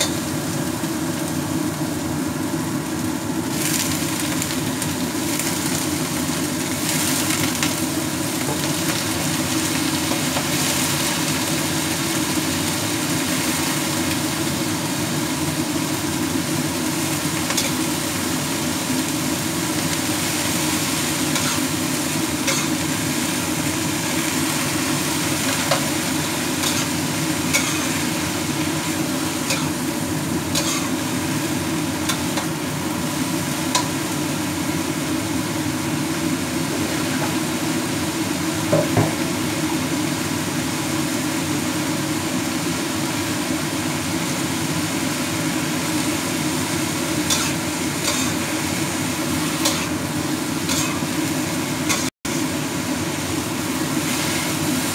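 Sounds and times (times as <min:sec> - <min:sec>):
noodles sizzling in a wok: 0:00.0 - 0:54.9
spatula scraping a pan: 0:21.2 - 0:21.8, 0:22.4 - 0:22.9, 0:26.6 - 0:28.2, 0:29.4 - 0:29.8, 0:30.5 - 0:31.0, 0:47.2 - 0:48.5, 0:49.6 - 0:50.0, 0:50.6 - 0:51.1, 0:51.9 - 0:52.1.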